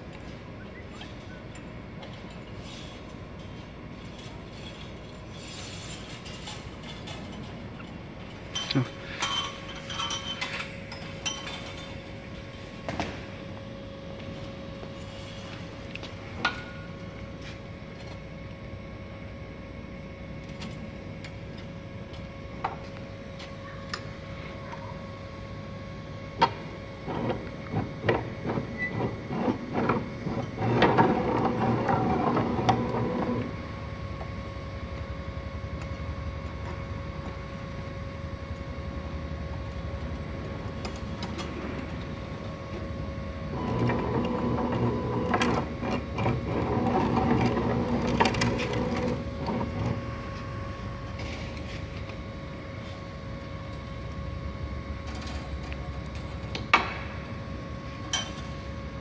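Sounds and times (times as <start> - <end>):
workshop machinery humming: 0.0 - 59.0
mechanical running and clatter: 43.5 - 50.1.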